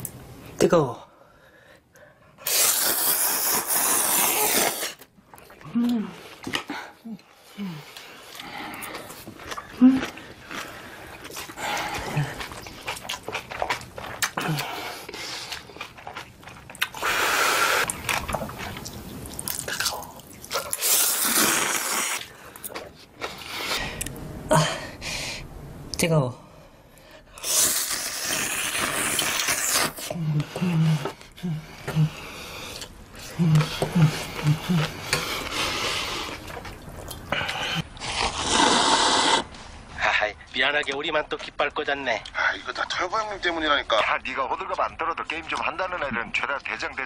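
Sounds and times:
person slurping noodles: 2.4s - 5.1s, 16.8s - 18.6s, 19.6s - 22.4s, 27.4s - 36.7s, 37.3s - 39.5s
chewing and lip-smacking: 5.0s - 24.2s, 27.4s - 38.8s.

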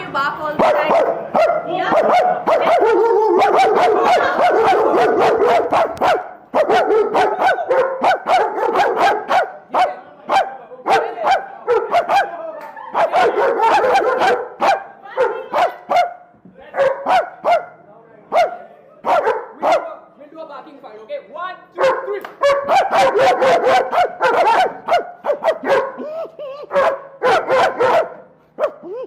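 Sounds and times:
dog barking loudly: 0.6s - 20.0s, 21.8s - 26.0s, 26.7s - 28.8s
man imitating barking: 6.9s - 12.4s, 21.8s - 27.0s, 28.6s - 29.0s.

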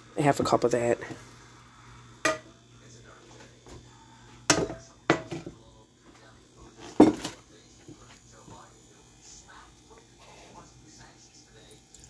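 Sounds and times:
metal frying pan knocking: 2.2s - 2.5s, 4.5s - 5.4s.

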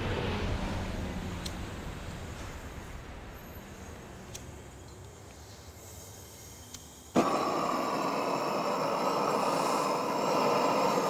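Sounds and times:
faint hiss: 2.0s - 11.0s
blowtorch flame rushing hiss: 3.8s - 11.0s.

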